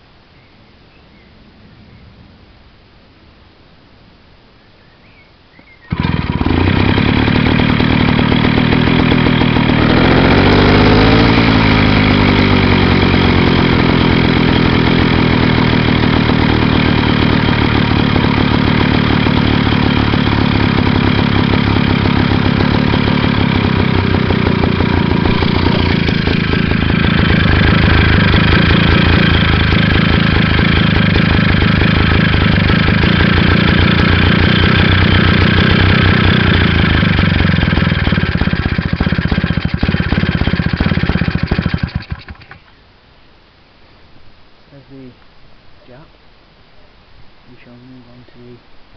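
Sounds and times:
stationary engine running: 0:05.9 - 0:42.7.

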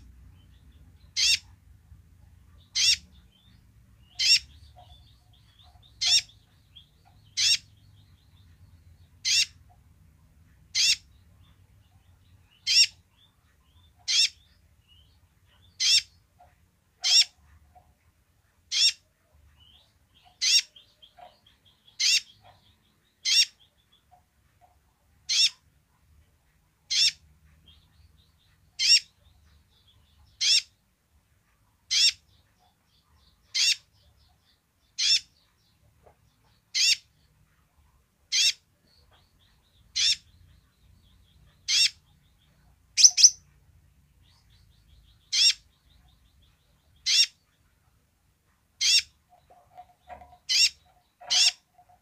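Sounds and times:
soft bird twittering: 0:38.3 - 0:43.6
bird sharp high chips: 0:43.0 - 0:43.4.

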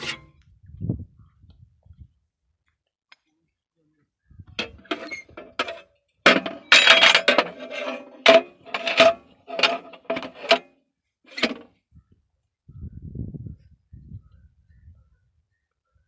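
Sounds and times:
hammer clanking on metal: 0:04.6 - 0:10.6.

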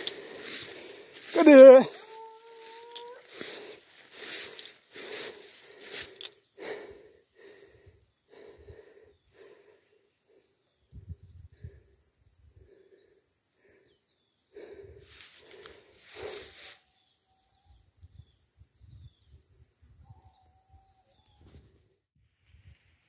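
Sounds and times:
grass rustling: 0:00.0 - 0:06.4, 0:15.1 - 0:16.8.

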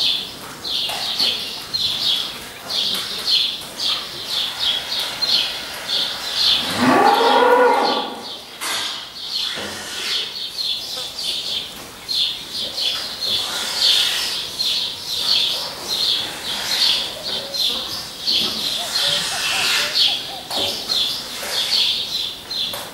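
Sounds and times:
high chirps: 0:16.9 - 0:21.8.

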